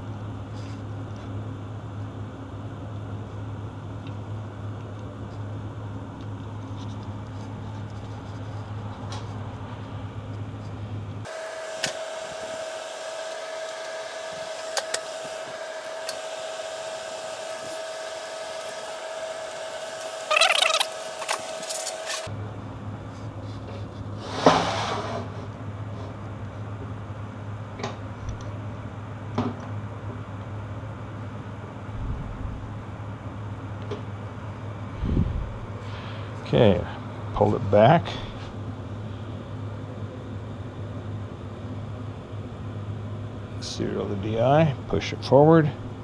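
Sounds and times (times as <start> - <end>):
high steady whine: 0.0 - 23.4
workshop hum: 0.0 - 46.0.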